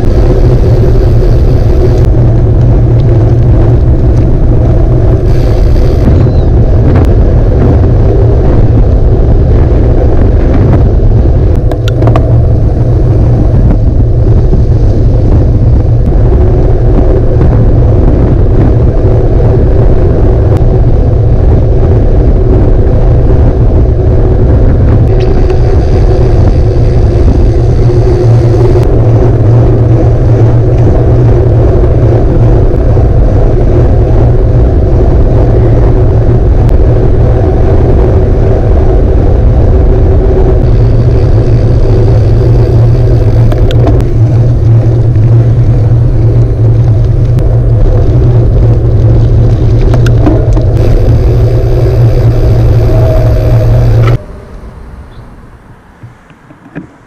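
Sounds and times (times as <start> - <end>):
wind buffeting camera: 0.0 - 54.3
tyre and road rumble: 0.0 - 57.0.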